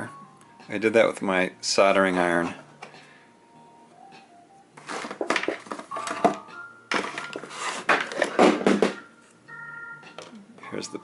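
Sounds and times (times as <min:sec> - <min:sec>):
plastic case being handled: 0:04.8 - 0:09.0.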